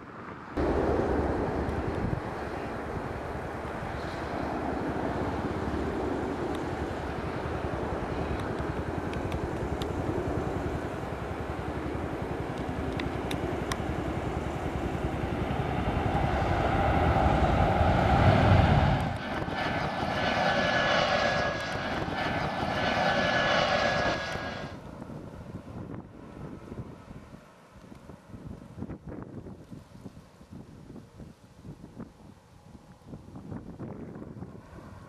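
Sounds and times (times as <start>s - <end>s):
jet engine rumble: 0.0s - 27.6s
jet engine whine: 0.0s - 27.7s
steady whistling tone: 15.8s - 24.8s.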